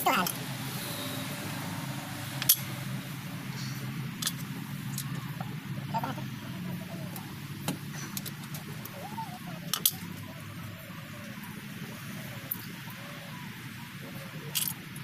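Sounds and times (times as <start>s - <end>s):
tools clicking on metal: 2.4s - 2.7s.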